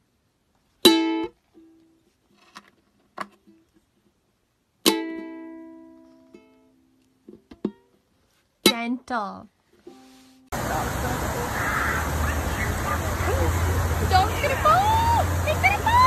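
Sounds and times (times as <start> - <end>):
ukulele strum: 0.8 - 2.1, 4.8 - 8.0, 8.6 - 9.1, 9.8 - 10.4
faint ukulele plucks: 0.8 - 2.2, 4.8 - 7.9.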